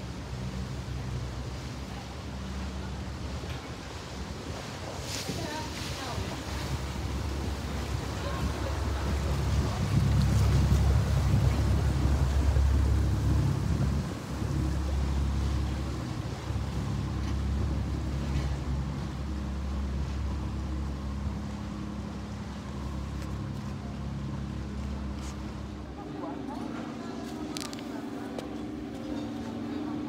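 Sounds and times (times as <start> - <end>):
motorboat engine droning: 0.0 - 30.0.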